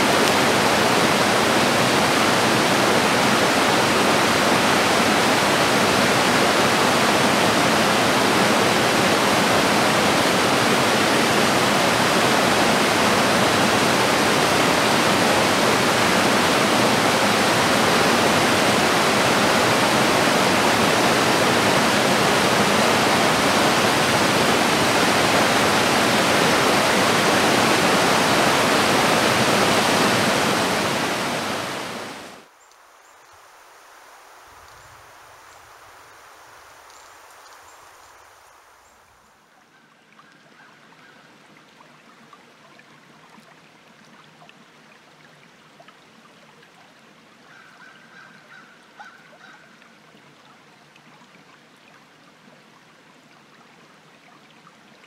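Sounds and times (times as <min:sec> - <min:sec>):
stream rushing over rocks: 0:00.0 - 0:32.5.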